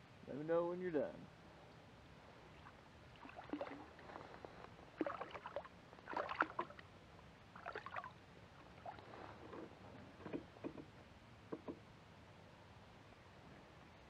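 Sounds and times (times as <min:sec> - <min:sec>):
fish splashing in water: 0:03.2 - 0:04.0, 0:05.0 - 0:06.8, 0:07.6 - 0:08.1.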